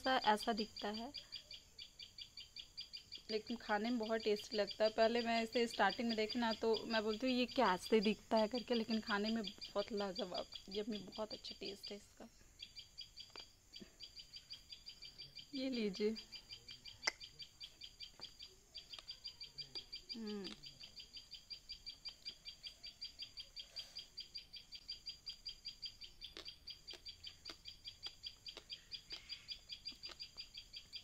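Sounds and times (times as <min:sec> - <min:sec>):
high chirps: 0:00.0 - 0:31.0.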